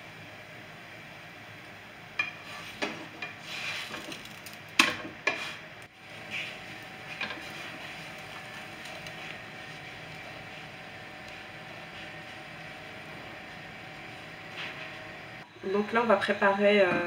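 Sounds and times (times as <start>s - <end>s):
utensil scraping frying pan: 2.2s - 15.3s.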